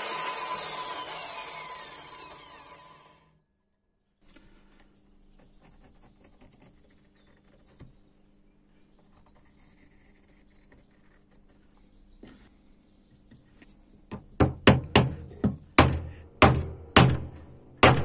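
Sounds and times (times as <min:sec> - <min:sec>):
pencil scratching on wood: 0:05.4 - 0:07.9, 0:09.0 - 0:11.7.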